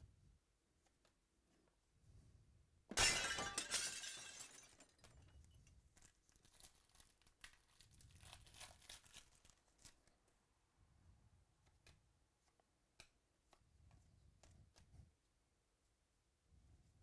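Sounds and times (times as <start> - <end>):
foil wrapper crinkling: 5.9 - 10.2
foil pack tearing: 6.3 - 10.0.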